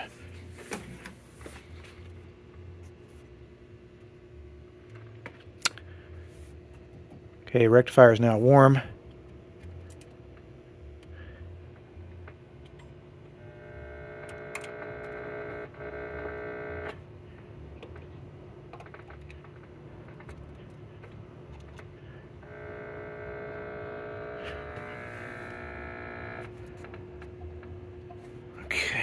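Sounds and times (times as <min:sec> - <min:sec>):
radio speaker hum: 0:00.0 - 0:03.0, 0:13.4 - 0:17.9, 0:21.8 - 0:29.0.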